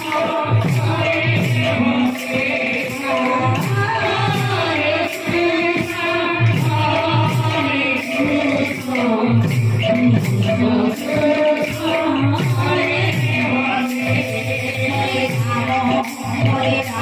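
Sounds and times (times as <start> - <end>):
group singing: 0.0 - 17.0
percussion beat: 0.0 - 17.0.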